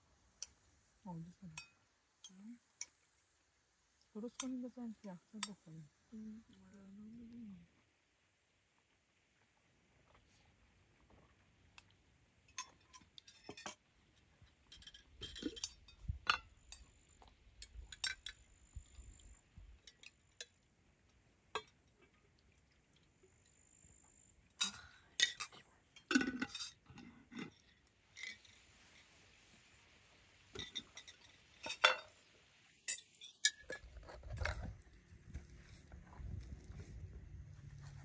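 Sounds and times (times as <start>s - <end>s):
spoons clinking on bowls and mugs: 12.5s - 13.8s, 14.7s - 16.8s, 24.6s - 27.5s, 30.6s - 32.2s, 32.8s - 34.4s.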